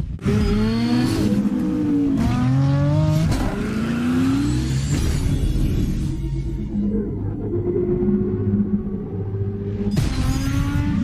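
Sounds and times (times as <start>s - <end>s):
engine revving: 0.0s - 6.2s.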